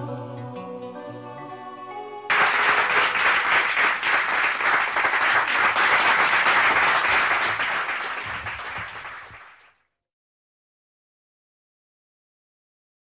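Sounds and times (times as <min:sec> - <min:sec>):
audience applause: 0:02.3 - 0:09.8.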